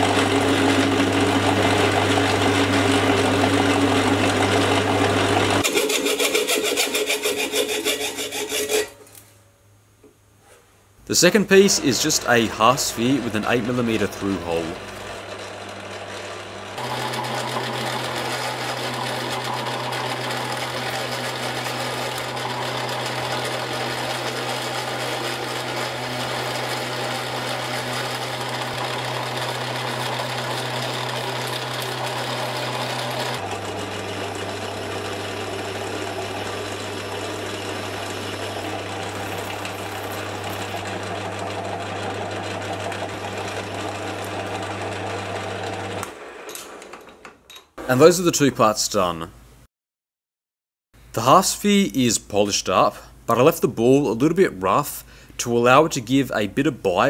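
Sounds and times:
metal lathe motor hum: 0.0s - 8.9s, 11.7s - 47.2s.

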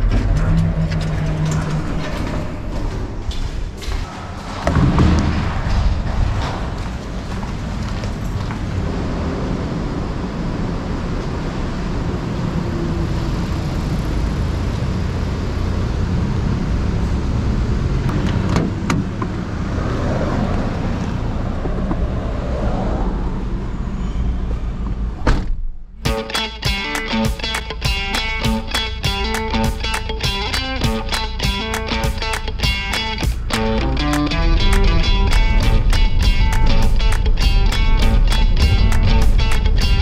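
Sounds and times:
car road and engine noise: 0.0s - 40.0s
upbeat guitar music: 26.0s - 40.0s.

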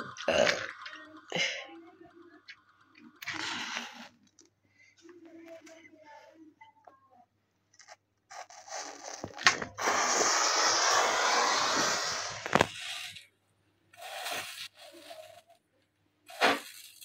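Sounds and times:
paper burning with rushing noise: 8.3s - 13.2s, 14.0s - 15.5s.

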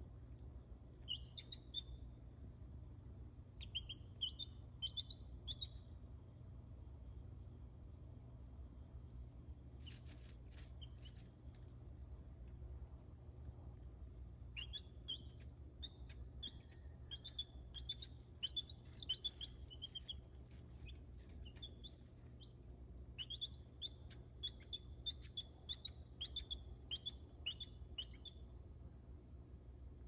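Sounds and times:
steady low hum: 0.0s - 30.0s
chicks peeping: 1.0s - 2.1s, 3.6s - 5.9s, 9.8s - 11.6s, 14.5s - 28.4s.

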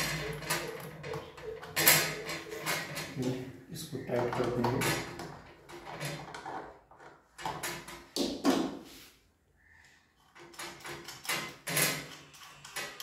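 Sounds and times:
metal parts clinking and scraping: 0.0s - 3.4s, 10.2s - 13.0s.

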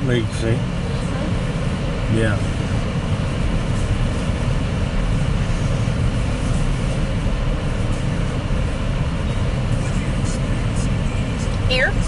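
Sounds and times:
vehicle cabin engine noise: 0.0s - 12.0s.

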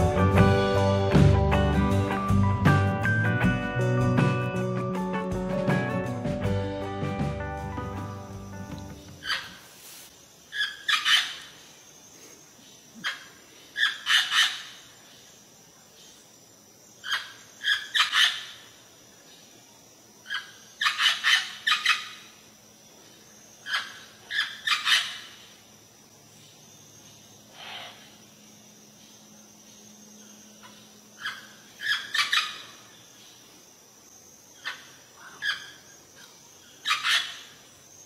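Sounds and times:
parrot squawking: 9.2s - 9.6s, 31.2s - 32.6s, 36.8s - 37.4s.

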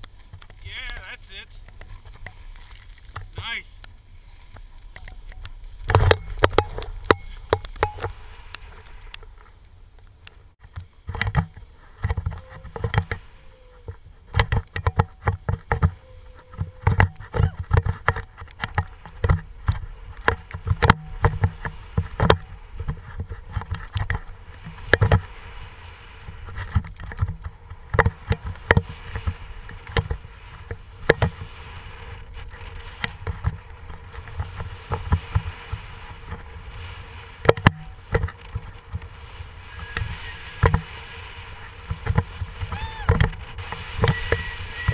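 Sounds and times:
wind rumbling on microphone: 0.0s - 44.9s
snowboard scraping over snow: 10.8s - 44.9s.

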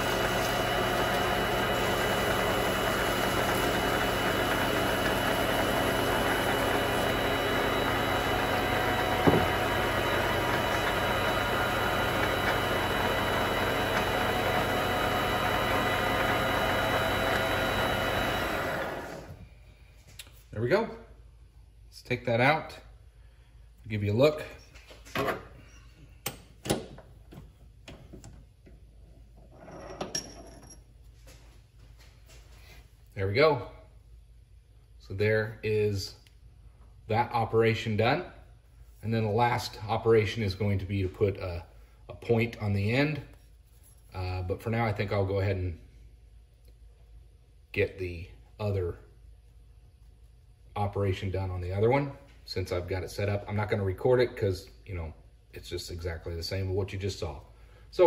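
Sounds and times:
lathe running: 0.0s - 19.4s.

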